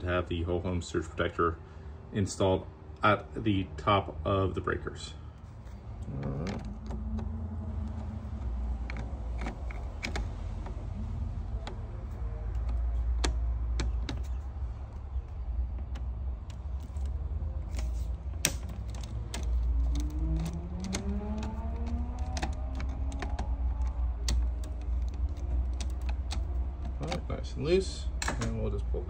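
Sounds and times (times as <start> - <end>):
low rumble: 5.7 - 28.5.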